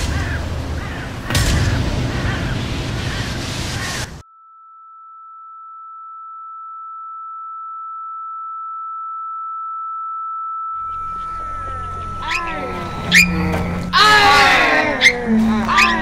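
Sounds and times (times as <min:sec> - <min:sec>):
outdoor background sound: 0:00.0 - 0:16.0
high ringing tone: 0:04.2 - 0:16.0.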